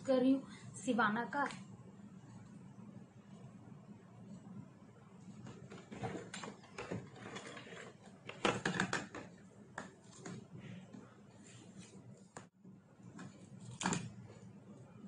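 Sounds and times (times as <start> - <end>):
small clicks and scrapes: 5.2 - 10.5.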